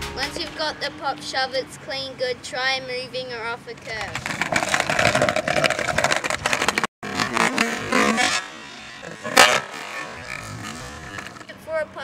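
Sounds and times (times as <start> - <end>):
skateboard wheels rattling over paving: 3.8 - 8.4.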